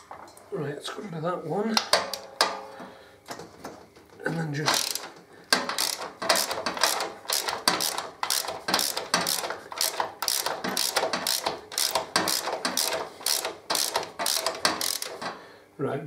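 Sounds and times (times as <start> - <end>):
ratchet pawl clicking: 4.7 - 15.3.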